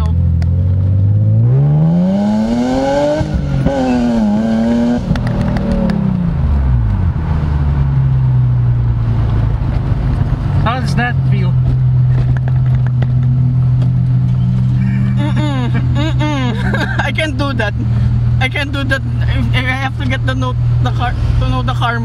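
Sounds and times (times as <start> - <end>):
car engine revving: 0.0 - 22.0
wind noise: 2.8 - 10.7.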